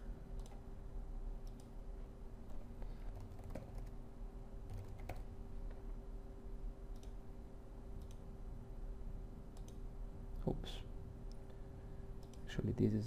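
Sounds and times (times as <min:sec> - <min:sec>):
steady faint hum: 0:00.0 - 0:13.0
computer keyboard typing: 0:02.5 - 0:04.0, 0:04.7 - 0:05.4.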